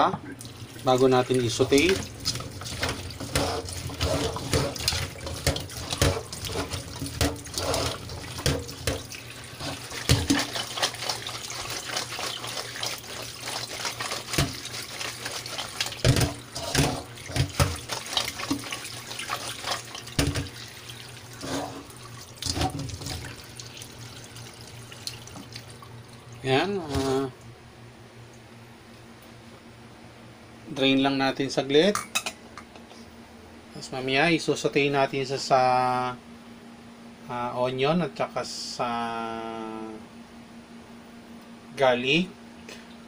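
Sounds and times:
tap water running: 0.3s - 27.5s.

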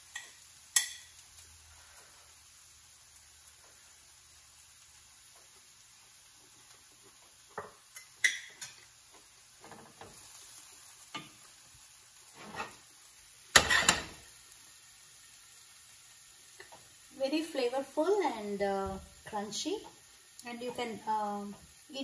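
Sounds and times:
spoon clinking on a plate: 0.1s - 1.2s, 7.6s - 8.8s
wooden spatula scraping a pan: 12.2s - 12.9s
dishes clattering: 13.6s - 14.2s.

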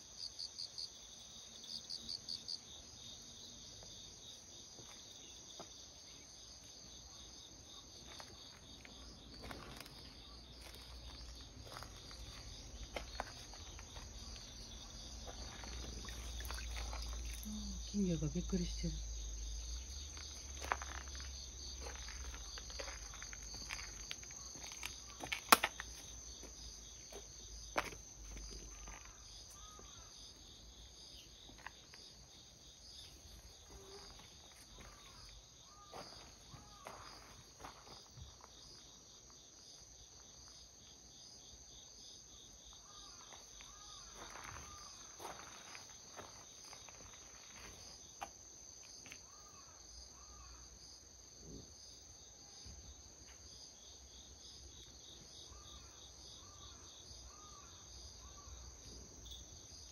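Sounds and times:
insects chirring: 0.0s - 59.9s
footsteps on gravel: 7.9s - 17.5s, 19.9s - 29.8s, 33.4s - 39.4s, 43.1s - 49.2s.

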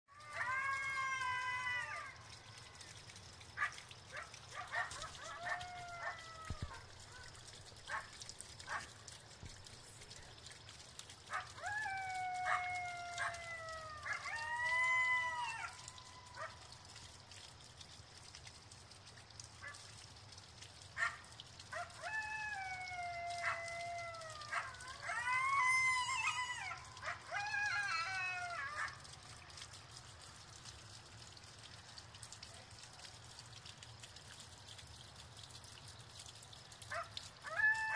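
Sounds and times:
coyotes howling: 0.1s - 9.0s, 11.2s - 17.2s, 21.0s - 29.5s, 36.9s - 37.9s
coyotes yipping: 0.2s - 2.9s, 3.5s - 9.0s, 11.2s - 17.0s, 19.6s - 19.9s, 21.0s - 29.5s, 36.9s - 37.9s.

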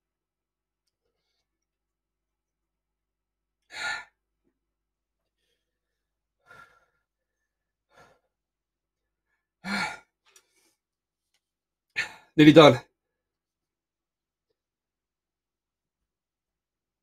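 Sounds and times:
man sighing and breathing sharply: 9.6s - 10.1s.

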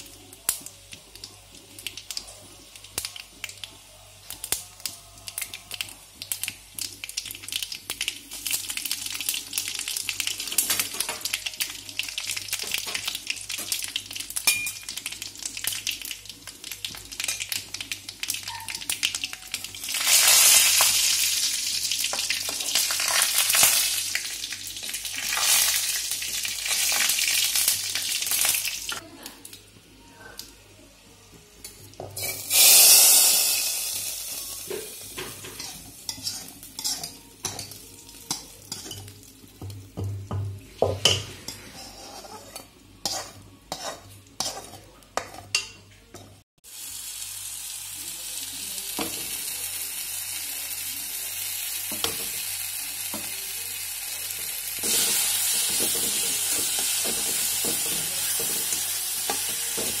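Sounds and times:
hot oil sizzling: 0.0s - 29.0s, 31.4s - 60.0s
prawns frying with sizzle: 0.0s - 60.0s
metal ladle scraping a pan: 35.2s - 37.7s, 41.0s - 45.7s
steel spatula scraping and stirring: 35.3s - 37.7s, 41.0s - 45.7s.

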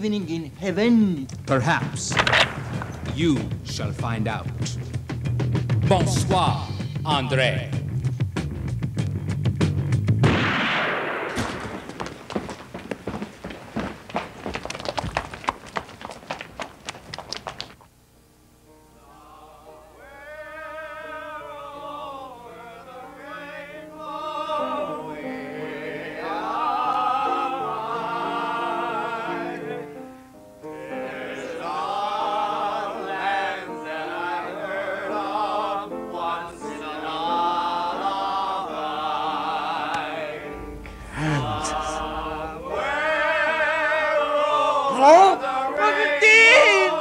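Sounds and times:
operatic singing with vibrato: 19.0s - 30.0s, 30.7s - 47.0s
musical accompaniment: 34.5s - 47.0s.

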